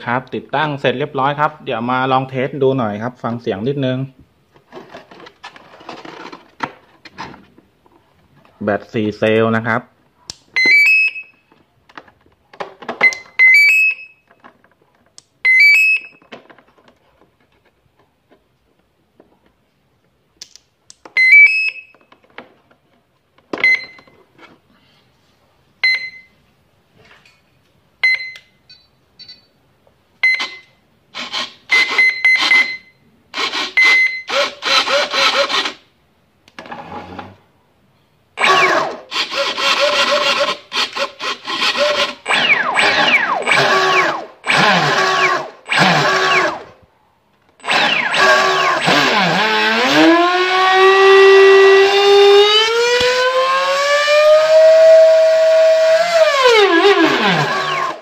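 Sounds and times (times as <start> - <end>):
single electronic beeps: 28.0 - 29.6
motor whirring bursts: 38.4 - 46.6, 47.6 - 58.0.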